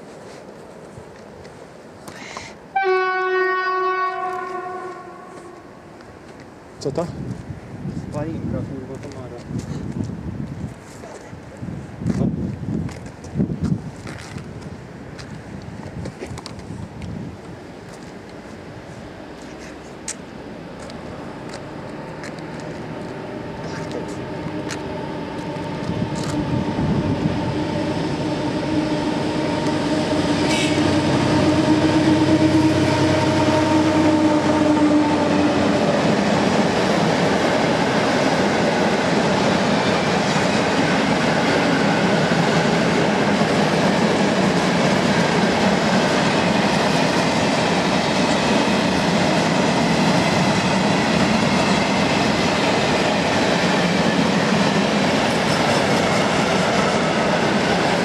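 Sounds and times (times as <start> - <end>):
locomotive engine drone: 18.2 - 58.0
freight wagons clickety-clack: 53.7 - 56.8.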